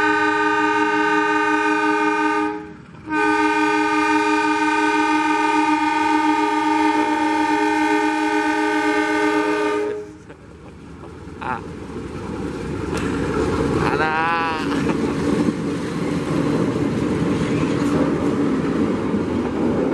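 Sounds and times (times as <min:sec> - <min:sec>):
diesel locomotive horn blasts: 0:00.0 - 0:10.3.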